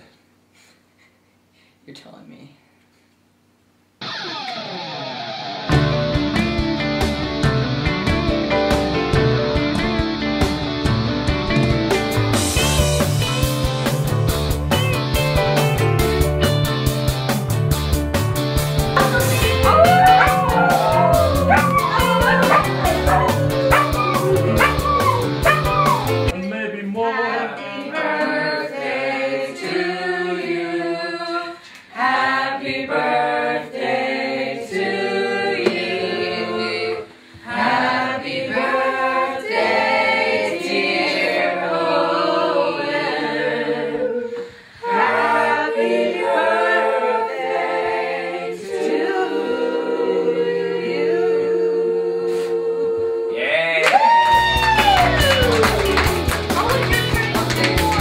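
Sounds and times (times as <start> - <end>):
music with steady beat: 5.7 - 26.3, 54.5 - 58.0
boys singing: 19.0 - 26.1, 26.9 - 44.3.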